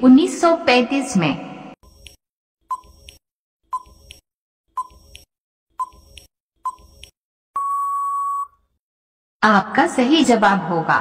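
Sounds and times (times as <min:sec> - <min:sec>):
short electronic beep: 0:07.6 - 0:08.6.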